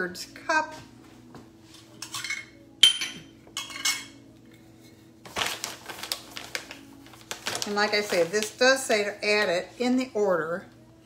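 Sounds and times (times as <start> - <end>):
kitchen utensils clinking: 1.9 - 4.2
bag rustling: 5.3 - 8.6.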